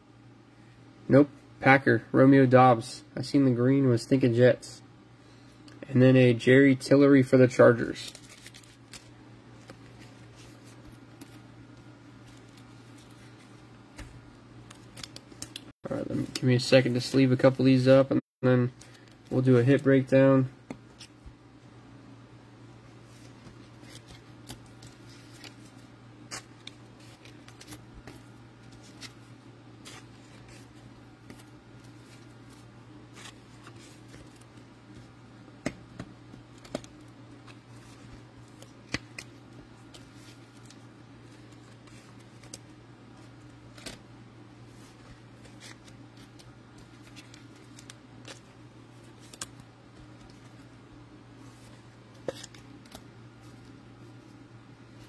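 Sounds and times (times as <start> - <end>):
steady low hum: 0.0 - 55.0
cards clicking into plastic sleeves: 14.0 - 16.4, 38.5 - 39.3.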